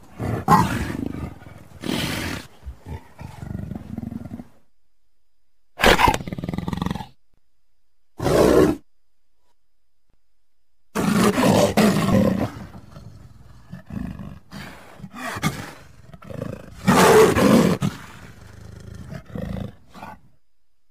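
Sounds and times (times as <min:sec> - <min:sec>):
leopard grunts: 0:00.1 - 0:04.6, 0:11.0 - 0:20.3
leopard calling: 0:00.2 - 0:04.5.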